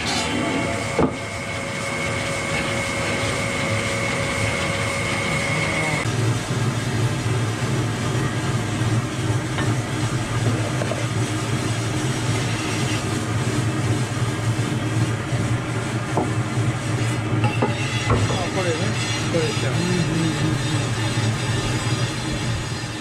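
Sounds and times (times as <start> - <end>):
lapping wheel motor hum: 0.0 - 23.0
whetstone grinding rasp: 17.5 - 23.0.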